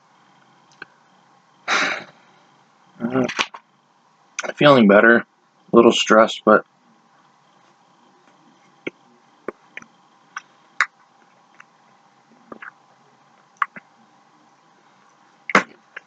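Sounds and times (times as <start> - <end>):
faint steady hum: 0.0 - 16.0
chewing: 12.5 - 12.8, 13.5 - 13.9.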